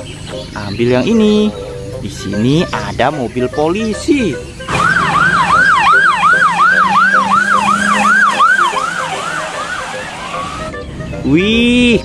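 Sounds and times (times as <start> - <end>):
police siren yelping: 4.7 - 10.8.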